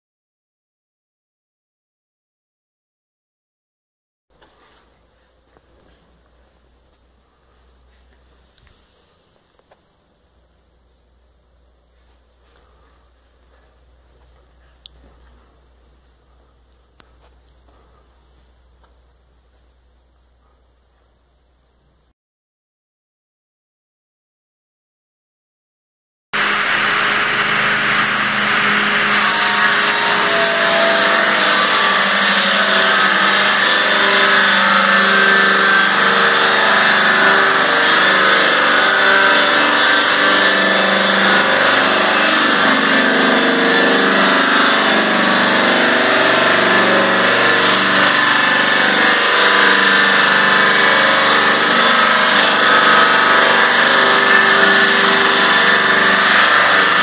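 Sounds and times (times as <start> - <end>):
circular saw cutting log: 12.6 - 14.0, 26.4 - 57.0.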